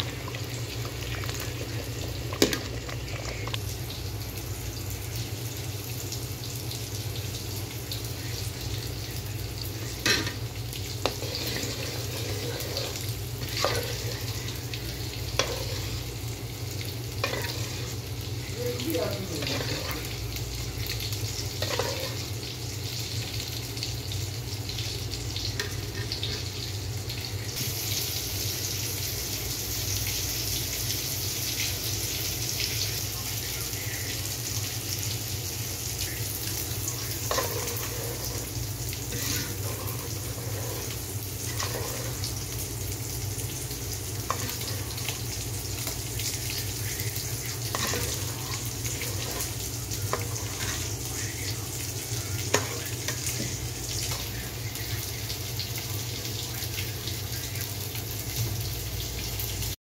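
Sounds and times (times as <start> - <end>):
thick stew simmering and bubbling: 0.0 - 27.7, 36.0 - 58.6
spoon scraping a pot: 10.0 - 14.5, 15.3 - 16.1, 17.2 - 18.0, 19.4 - 20.2, 21.6 - 22.3, 37.1 - 42.4, 44.2 - 45.2, 47.5 - 51.1, 52.5 - 54.2.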